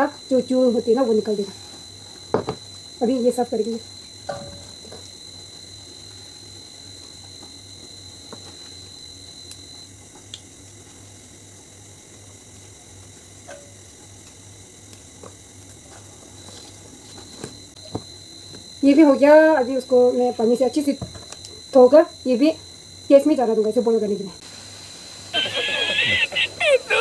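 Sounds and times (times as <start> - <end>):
thin high whine: 24.4 - 27.0.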